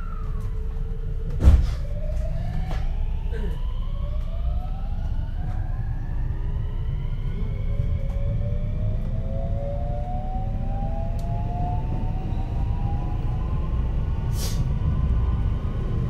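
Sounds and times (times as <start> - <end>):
train inverter and motors whining: 0.0 - 16.0
loud thump: 1.4 - 1.8.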